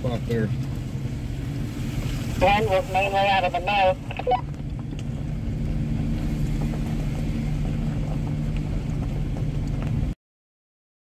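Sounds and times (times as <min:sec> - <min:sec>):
vehicle engine humming: 0:00.0 - 0:10.2
light ticks and rattles: 0:04.4 - 0:10.1.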